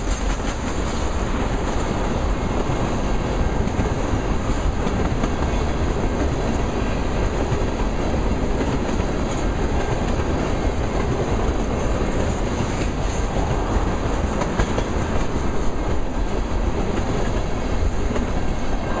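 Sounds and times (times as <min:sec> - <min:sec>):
train wheels running on rails: 0:00.0 - 0:19.0.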